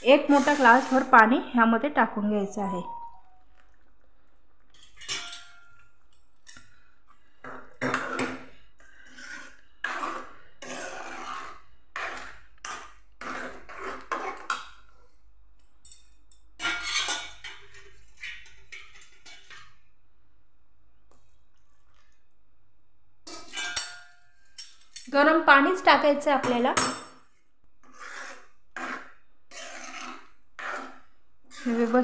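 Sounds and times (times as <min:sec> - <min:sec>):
metal ladle scraping a pan: 0:00.1 - 0:01.3, 0:07.8 - 0:14.9, 0:16.6 - 0:19.8, 0:23.2 - 0:25.0, 0:27.8 - 0:32.0.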